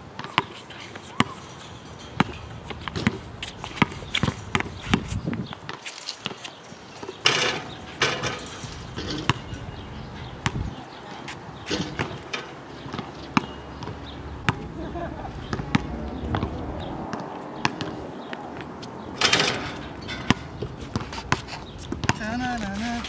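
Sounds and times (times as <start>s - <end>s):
ball rattling against hoop: 0.1s - 10.9s, 11.6s - 14.7s, 19.2s - 22.2s
basketball bouncing on hard court: 0.2s - 0.5s, 2.2s - 5.1s, 7.4s - 9.6s, 11.8s - 14.6s, 15.5s - 18.0s, 20.0s - 22.3s.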